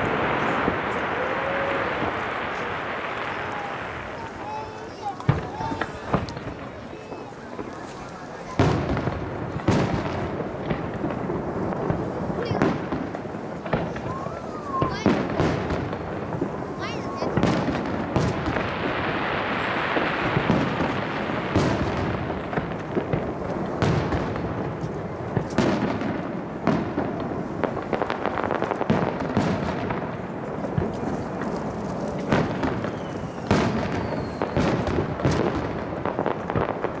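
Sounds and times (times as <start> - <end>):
firework shells bursting: 0.0 - 19.1
firework crackle: 0.0 - 37.0.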